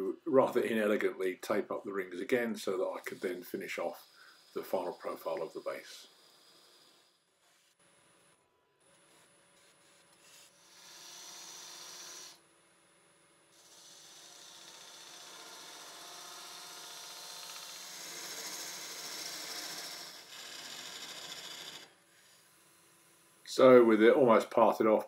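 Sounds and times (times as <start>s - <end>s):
lathe tool scraping wood: 2.3s - 7.8s, 9.0s - 12.4s, 13.6s - 22.6s.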